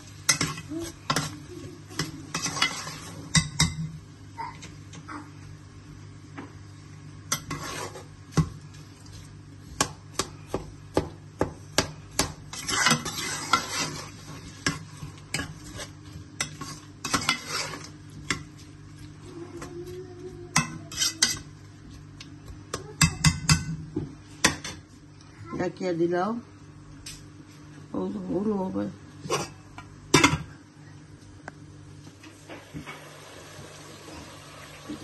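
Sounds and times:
metal spoon scraping a pan: 0.3 - 3.6, 7.3 - 8.1, 12.5 - 18.5, 20.5 - 21.5
onions sizzling in oil: 32.3 - 35.0.

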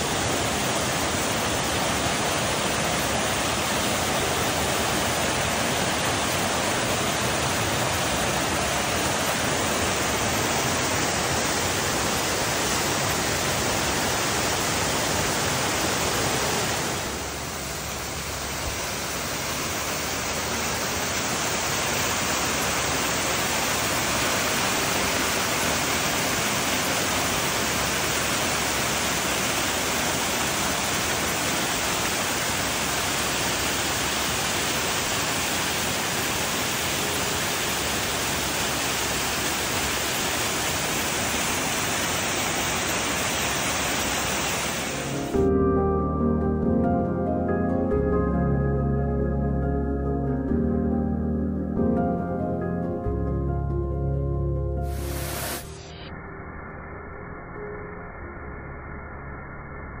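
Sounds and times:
waterfall rushing onto rocks: 0.0 - 45.4, 54.9 - 55.8.

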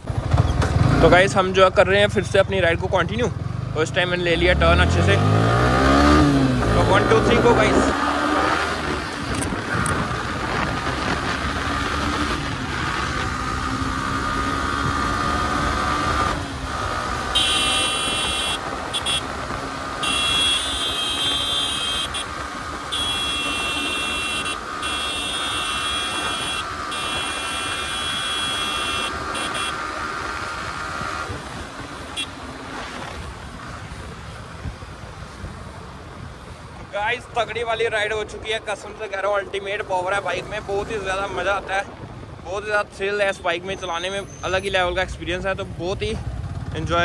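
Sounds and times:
motorcycle engine accelerating: 0.0 - 1.8, 3.0 - 34.6
wind rumble on microphone: 7.6 - 13.9.

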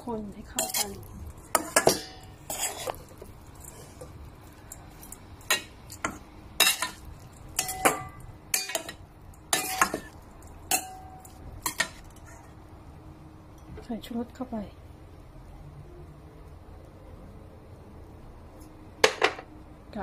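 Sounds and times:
metal utensil knocking metal bowl: 7.6 - 9.0.

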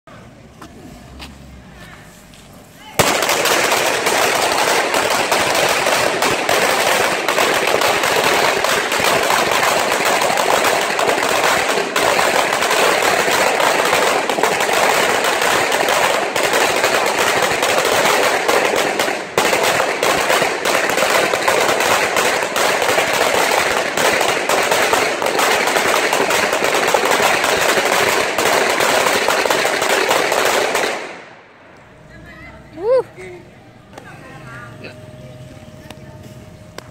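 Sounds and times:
firecrackers rattling bangs: 3.0 - 32.1.

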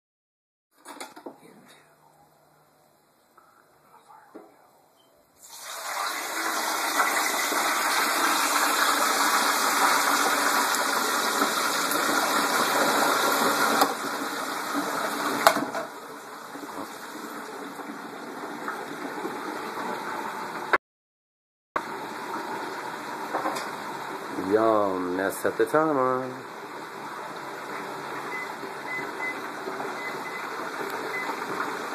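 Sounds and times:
hot oil sizzling and bubbling: 5.4 - 20.8, 21.8 - 31.9.

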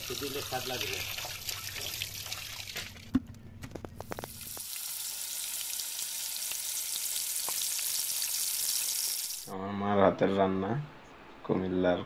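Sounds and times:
tap water running into metal bowl: 0.0 - 3.0, 4.2 - 9.5
fish sizzling in hot oil: 4.0 - 9.5.

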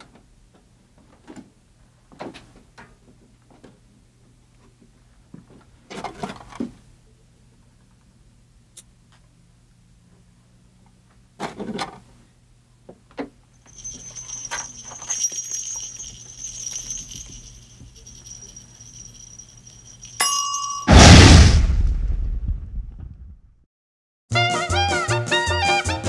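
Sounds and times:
small bells jingling: 13.6 - 20.9.

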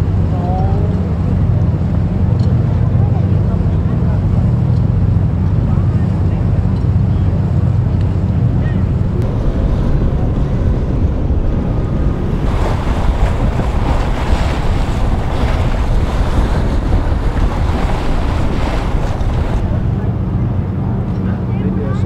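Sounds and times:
wind buffeting microphone: 1.0 - 22.0
open water hissing: 8.9 - 20.6.

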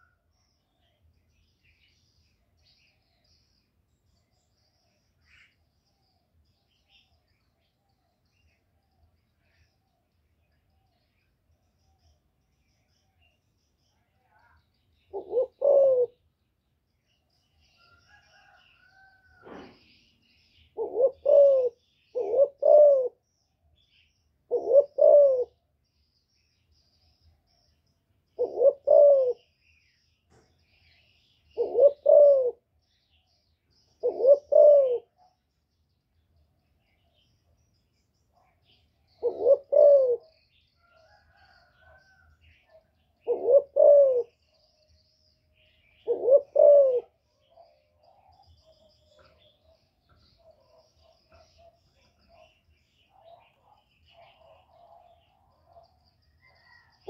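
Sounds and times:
small birds chirping: 0.0 - 57.0
dove cooing: 15.1 - 16.2, 20.8 - 23.2, 24.5 - 25.6, 28.4 - 29.5, 31.5 - 32.6, 34.0 - 35.3, 39.1 - 42.3, 43.2 - 44.4, 45.8 - 49.8, 53.1 - 55.8, 56.4 - 57.0.

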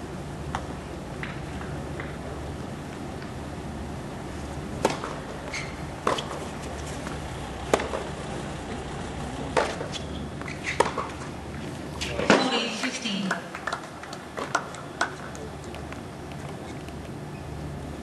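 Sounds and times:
low background hum: 0.0 - 18.0
racket hitting tennis ball: 4.8 - 8.8, 9.5 - 11.3.

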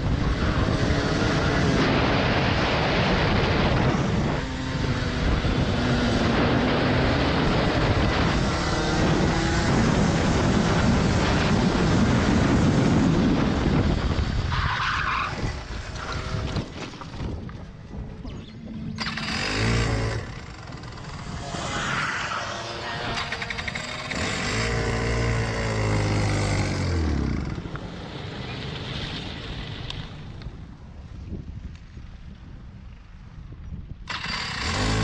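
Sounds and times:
kart skidding: 0.0 - 17.4, 18.4 - 30.4, 34.1 - 35.0
kart engine running: 18.6 - 30.4, 34.0 - 35.0.

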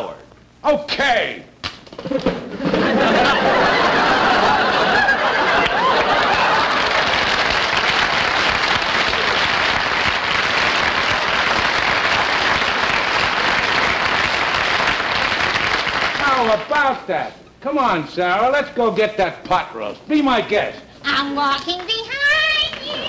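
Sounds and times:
audience laughing: 2.2 - 7.4
audience applause: 2.6 - 16.7, 22.4 - 23.0.

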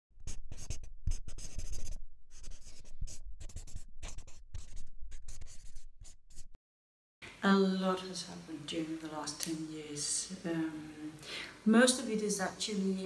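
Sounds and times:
marker scratching on paper: 0.2 - 6.6.

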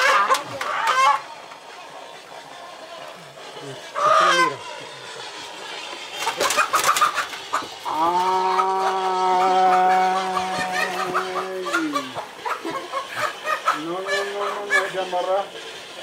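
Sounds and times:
chickens clucking and squawking: 0.0 - 16.0
long steady pitched tone: 7.8 - 12.3.

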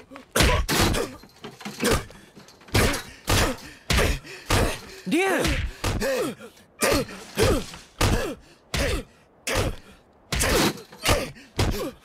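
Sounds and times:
pained grunts: 0.0 - 12.0
punch impacts: 6.9 - 11.9.

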